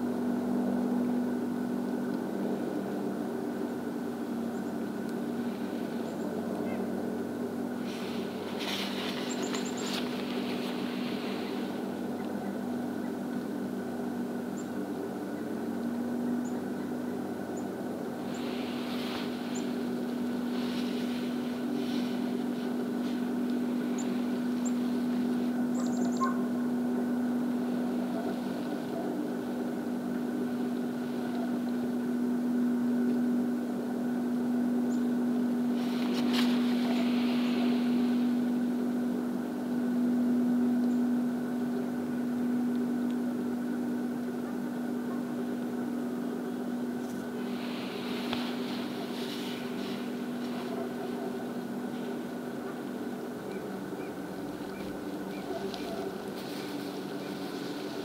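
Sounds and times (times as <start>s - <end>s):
low mechanical hum: 0.0s - 58.0s
soft rushes of noise: 18.2s - 25.5s.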